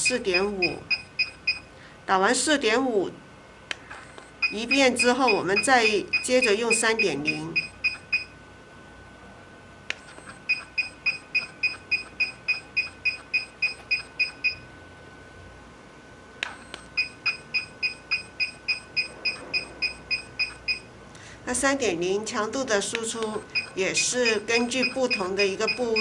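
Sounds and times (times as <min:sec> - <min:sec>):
short high beeps: 0:00.0 - 0:01.7, 0:04.0 - 0:08.3, 0:10.1 - 0:14.6, 0:16.6 - 0:20.9, 0:23.5 - 0:26.0.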